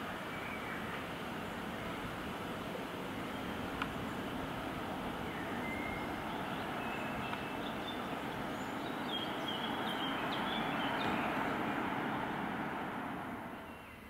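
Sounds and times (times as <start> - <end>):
birds chirping: 0.0 - 14.0
vehicle passing: 4.2 - 14.0.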